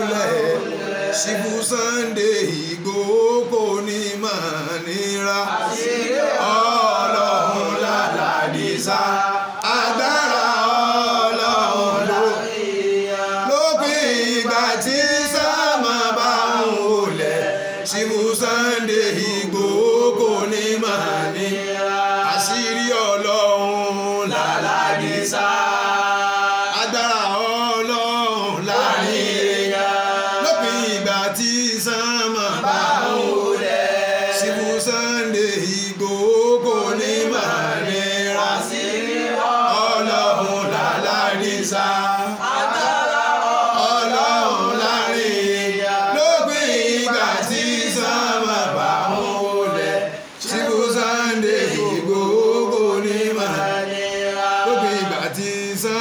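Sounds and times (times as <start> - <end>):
man chanting: 0.0 - 42.5, 43.6 - 56.0.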